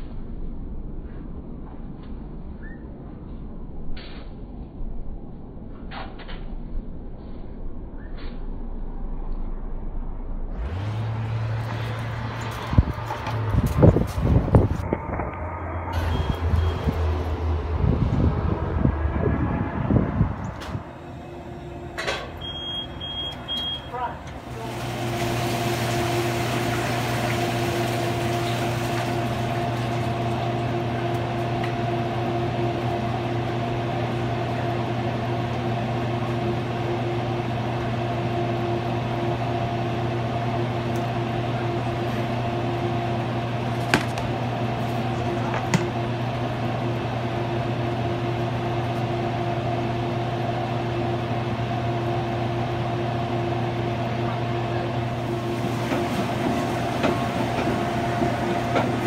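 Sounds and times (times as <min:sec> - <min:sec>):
kitchen equipment humming: 0:10.6 - 0:34.6, 0:43.3 - 0:48.4, 0:54.7 - 0:59.0.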